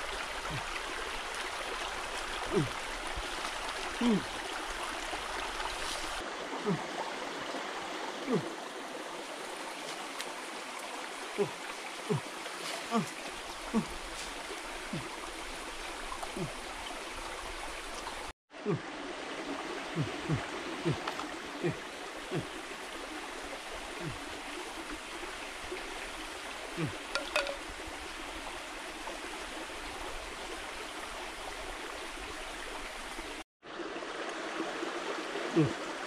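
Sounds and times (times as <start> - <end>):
stream running over rocks: 0.0 - 36.0.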